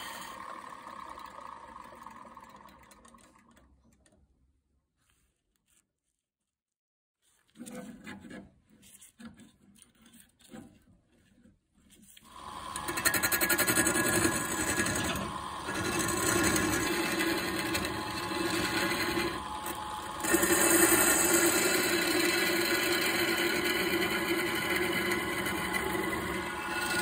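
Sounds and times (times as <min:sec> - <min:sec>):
tool rubbing spinning wood: 0:00.0 - 0:03.1, 0:12.2 - 0:27.0
lathe cutting wood with hum: 0:00.0 - 0:03.2, 0:12.3 - 0:27.0.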